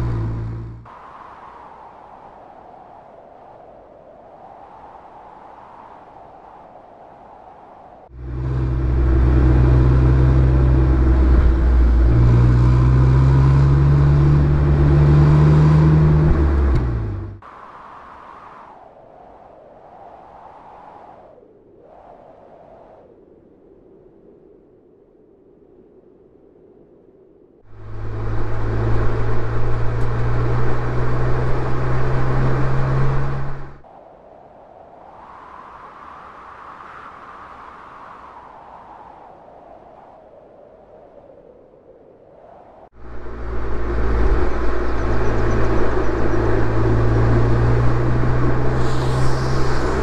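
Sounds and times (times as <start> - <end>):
car engine accelerating: 0.0 - 0.9, 8.1 - 17.4, 27.7 - 33.8, 43.0 - 50.0
road noise: 0.0 - 1.5, 8.0 - 17.9, 27.7 - 33.9, 42.9 - 50.0
wind noise: 0.0 - 50.0.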